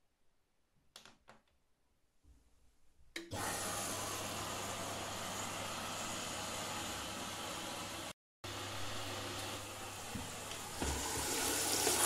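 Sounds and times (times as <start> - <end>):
water rushing into washing machine: 3.3 - 12.0.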